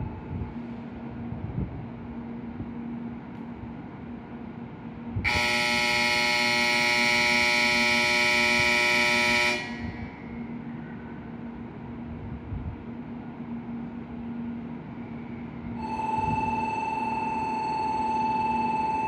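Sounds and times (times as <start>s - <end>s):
low steady hum: 0.0s - 19.0s
train horn long blast: 5.2s - 10.4s, 15.8s - 19.0s.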